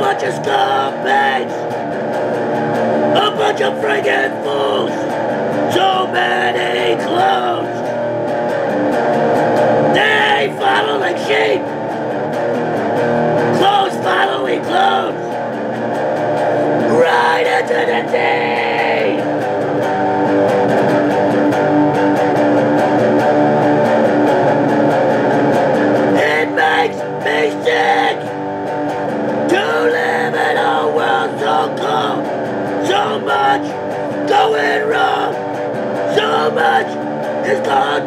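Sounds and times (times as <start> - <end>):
person singing: 0.0 - 1.6, 3.2 - 5.1, 5.7 - 7.9, 9.9 - 11.7, 13.6 - 15.4, 16.7 - 19.3, 26.1 - 28.3, 29.5 - 38.0
heavy metal electric guitar: 0.0 - 38.0.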